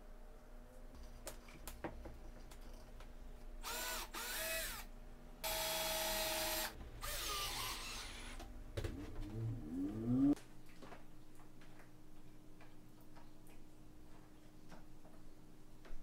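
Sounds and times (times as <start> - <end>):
cordless drill driving screws: 3.6 - 8.4
drill rising whine: 3.6 - 8.4.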